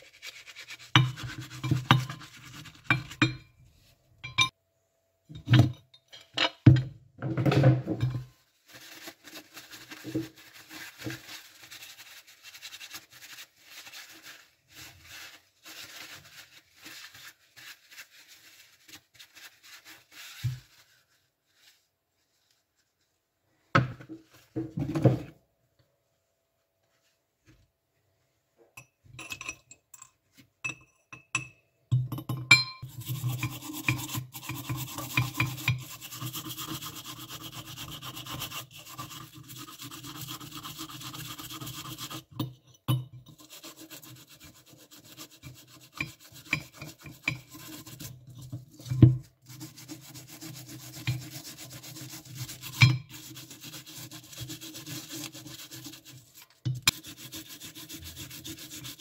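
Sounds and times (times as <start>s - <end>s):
toothbrush scrubbing metal: 0.0s - 3.5s, 8.8s - 20.7s, 32.8s - 59.0s.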